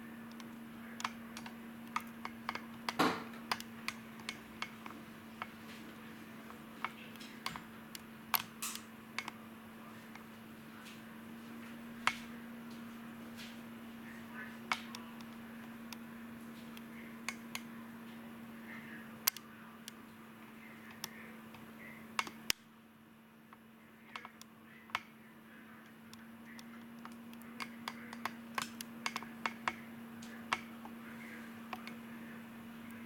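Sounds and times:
steady low hum: 0.0 - 33.0
sharp light clicks and taps: 0.3 - 9.4, 12.0 - 12.8, 14.6 - 18.2, 19.2 - 20.2, 22.2 - 22.7, 23.5 - 25.1, 25.8 - 31.0, 31.7 - 32.0.

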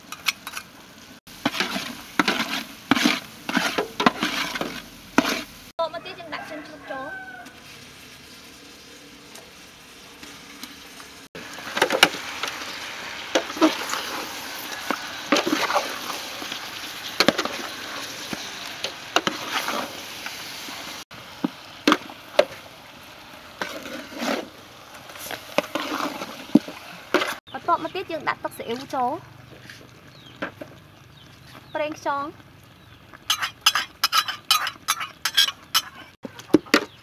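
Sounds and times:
meat stirred in a metal pot: 1.3 - 5.7, 11.4 - 22.8, 23.4 - 27.5, 32.7 - 37.0
knocks and scrapes against pot: 1.4 - 5.5, 19.2 - 19.9, 23.6 - 24.5, 25.1 - 27.4, 33.3 - 37.0.

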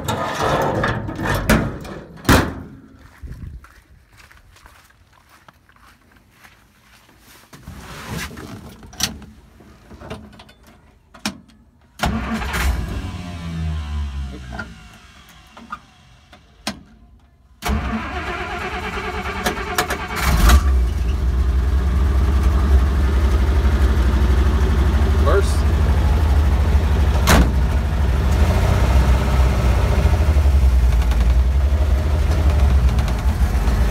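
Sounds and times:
jeep engine starting and running: 12.0 - 33.9.

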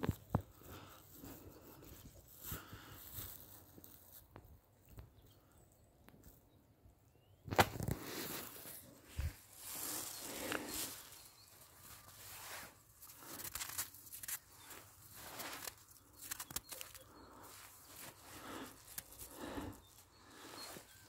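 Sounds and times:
footsteps crunching in snow: 7.6 - 21.0.

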